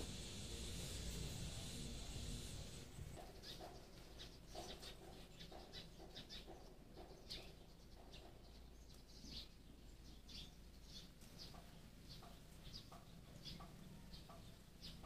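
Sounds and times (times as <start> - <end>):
faint bird chirps: 3.2 - 15.0.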